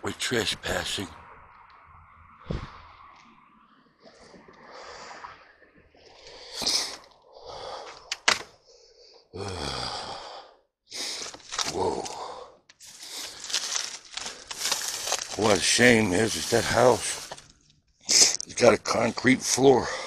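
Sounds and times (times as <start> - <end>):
rustling through dry brush: 11.0 - 12.2, 12.8 - 17.6.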